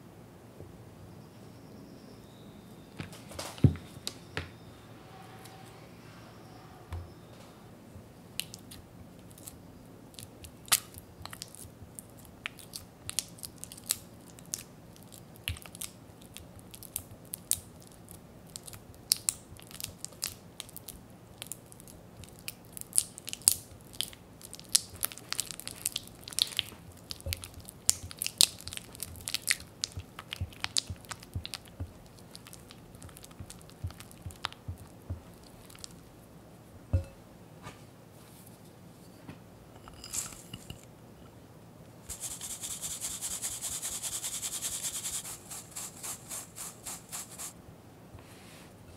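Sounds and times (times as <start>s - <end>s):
spatula squishing butter: 8.4s - 36.1s
spatula tapping glass bowl: 36.9s - 37.2s.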